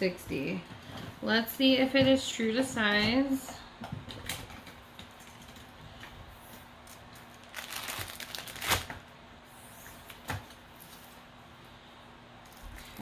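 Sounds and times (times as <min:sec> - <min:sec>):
plastic bag crinkling: 0:06.8 - 0:09.0.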